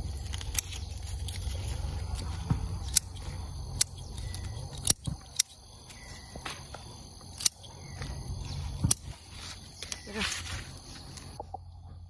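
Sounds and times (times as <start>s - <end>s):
scissors snipping stalks: 0.0s - 6.6s, 7.2s - 10.2s
insects trilling: 0.0s - 12.0s.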